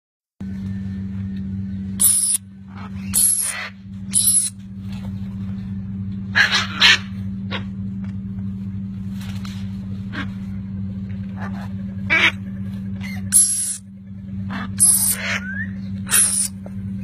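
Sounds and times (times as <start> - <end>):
steady low hum: 0.4 - 17.0
parrots squawking harshly: 6.4 - 7.1, 13.0 - 13.8, 14.5 - 15.5, 16.1 - 16.5.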